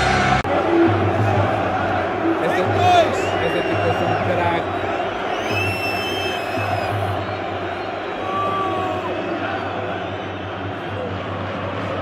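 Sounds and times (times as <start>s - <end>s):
stadium crowd cheering and shouting: 0.0s - 12.0s.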